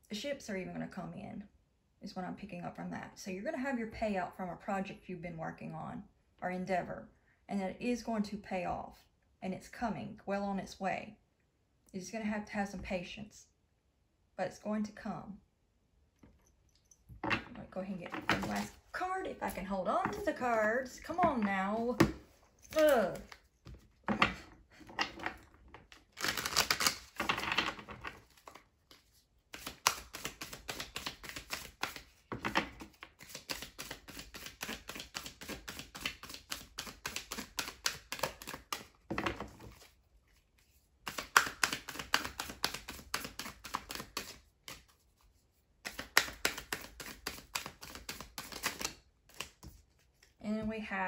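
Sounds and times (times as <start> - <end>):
cards being shuffled: 18.1 - 45.2, 45.8 - 50.4.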